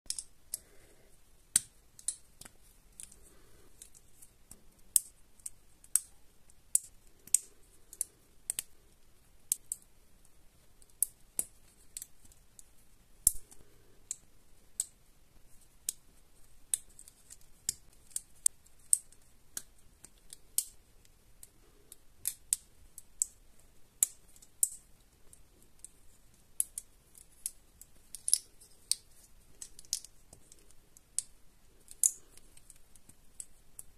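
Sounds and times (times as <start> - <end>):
plastic bricks clicking together: 0.1 - 0.7, 24.0 - 33.9.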